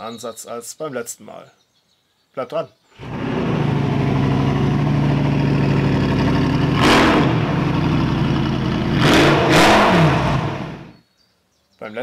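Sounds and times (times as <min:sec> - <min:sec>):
car engine idling and revving: 0:03.0 - 0:10.9.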